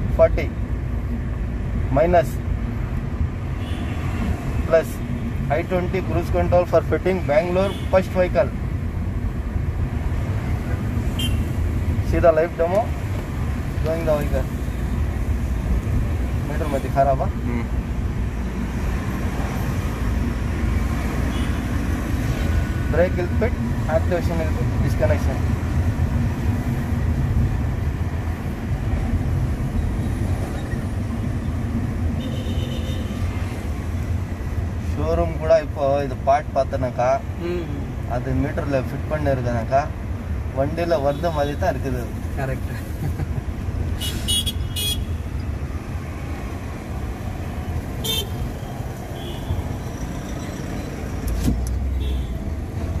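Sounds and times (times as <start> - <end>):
car engine and tyre rumble: 0.0 - 53.0
car horn toots: 11.1 - 11.5, 44.0 - 45.2, 48.0 - 48.4.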